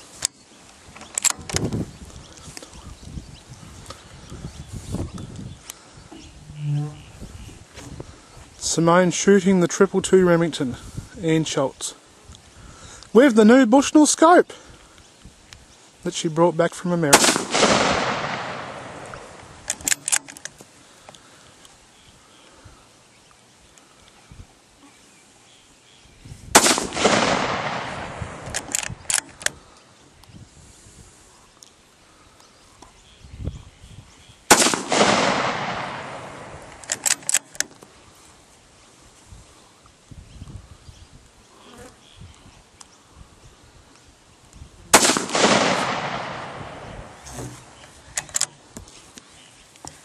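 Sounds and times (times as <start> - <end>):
sharp clicks: 1.0 - 3.2, 17.2 - 21.8, 26.6 - 29.6, 34.5 - 37.9, 45.0 - 48.6
rifle shot: 17.1 - 20.2, 26.6 - 29.3, 34.5 - 37.5, 44.9 - 47.2.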